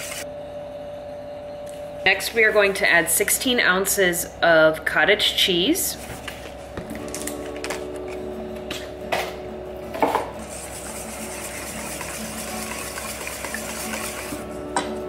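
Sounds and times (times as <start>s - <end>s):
whisk beating and scraping metal bowl: 10.4s - 14.9s.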